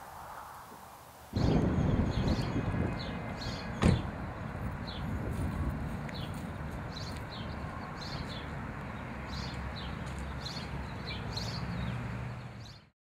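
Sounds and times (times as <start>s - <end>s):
small birds chirping: 1.4s - 12.9s.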